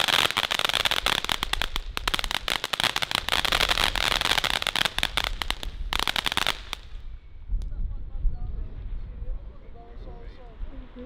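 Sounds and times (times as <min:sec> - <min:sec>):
firework hissing and crackling: 0:00.0 - 0:07.0.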